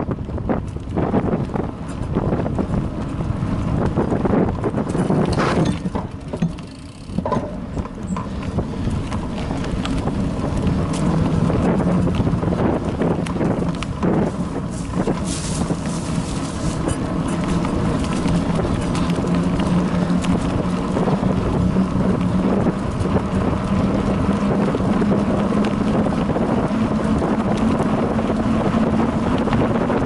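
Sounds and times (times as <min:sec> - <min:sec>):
bicycle rattling over rough ground: 0:00.0 - 0:30.0
wind buffeting microphone: 0:00.0 - 0:30.0.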